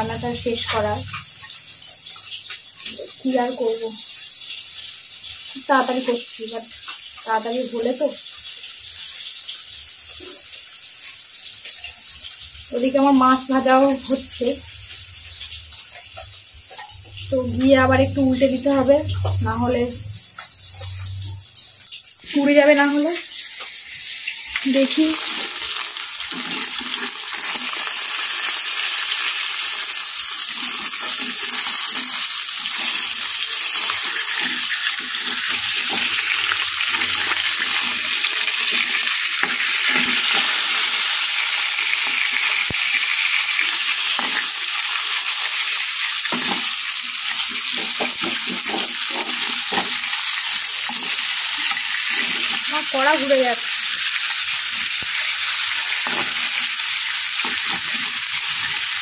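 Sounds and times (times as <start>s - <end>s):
fish frying in hot oil: 0.0s - 59.0s
oil crackling and spattering: 20.2s - 59.0s.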